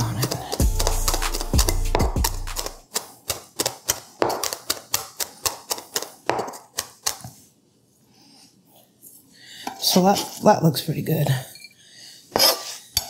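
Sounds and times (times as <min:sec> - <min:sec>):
knife chopping on plastic board: 0:00.0 - 0:07.3.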